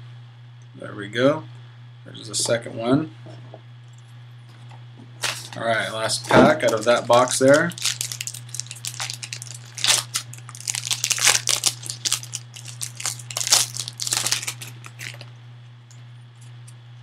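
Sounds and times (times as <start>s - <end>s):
foil pack tearing and crinkling: 5.2s - 6.0s, 6.6s - 15.3s.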